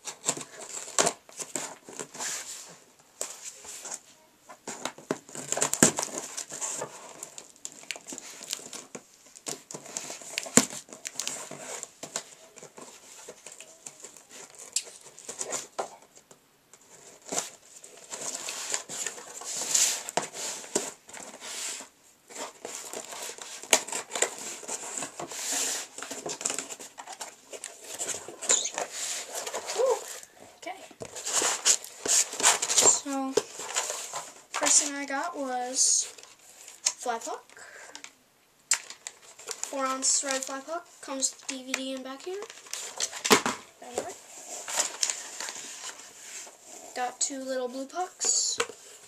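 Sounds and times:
cardboard rustling and crinkling: 0.0s - 38.1s, 38.8s - 49.0s.

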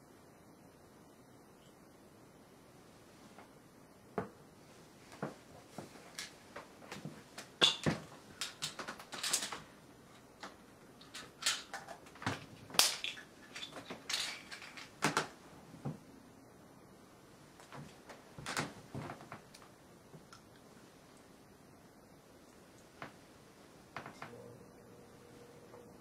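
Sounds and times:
handling small objects: 7.4s - 15.4s.

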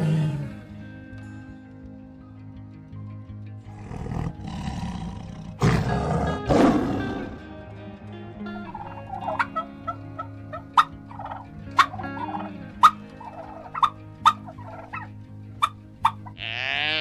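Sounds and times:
tiger growling: 0.0s - 0.8s, 3.7s - 7.4s, 10.0s - 16.3s
soft background music: 0.0s - 17.0s
turkey gobbling: 8.7s - 16.4s.

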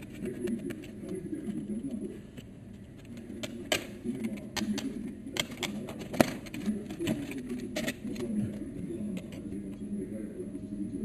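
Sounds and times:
hard plastic parts tapping and clicking: 2.3s - 8.6s.

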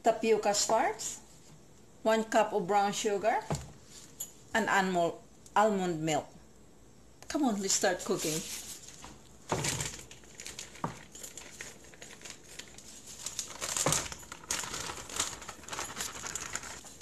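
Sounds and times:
plastic bag crinkling: 8.0s - 17.0s.

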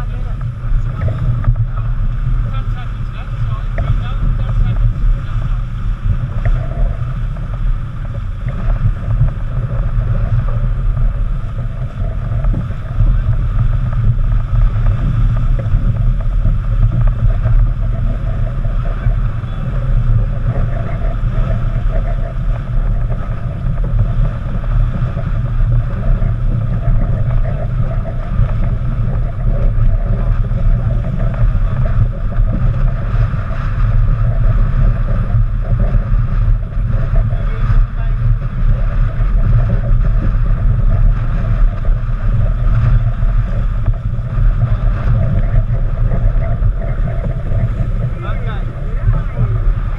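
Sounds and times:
water rushing along hull: 0.0s - 49.9s
wind buffeting microphone: 0.0s - 49.9s.

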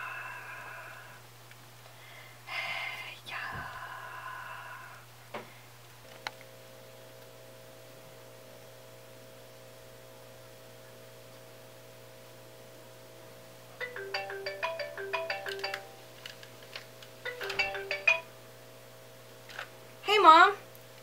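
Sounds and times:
marimba-like phone ringtone: 13.8s - 16.2s, 17.3s - 18.3s.

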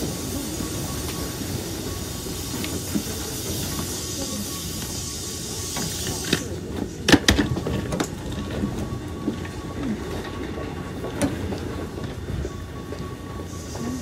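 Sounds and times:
air hissing: 0.0s - 6.7s
train car low rumble: 0.0s - 14.0s.

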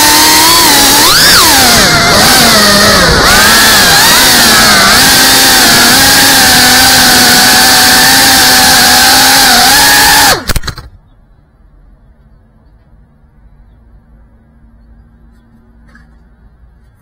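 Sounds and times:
drone motors whining: 0.0s - 10.9s.

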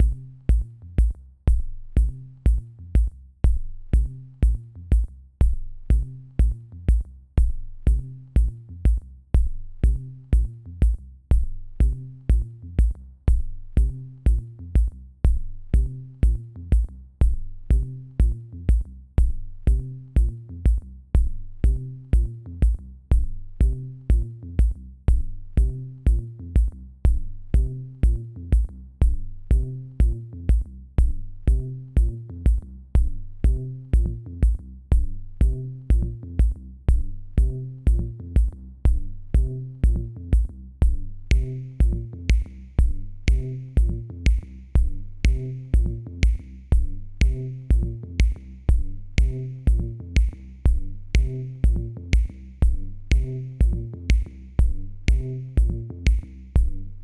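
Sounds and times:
kick drum beat: 0.0s - 57.0s
repeating bass line: 19.6s - 57.0s.

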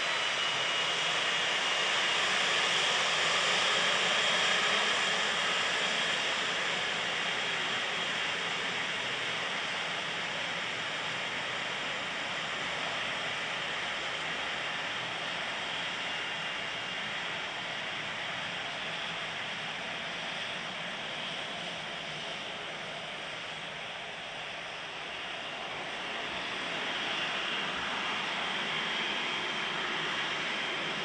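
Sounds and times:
jet engines hissing and whining: 0.0s - 31.0s.

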